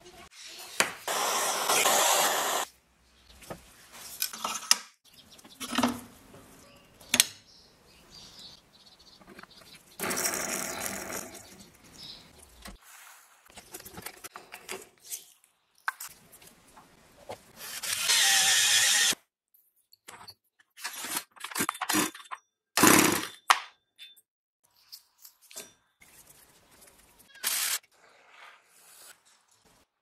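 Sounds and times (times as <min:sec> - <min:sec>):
power drill running: 0:01.1 - 0:02.6, 0:17.6 - 0:19.2.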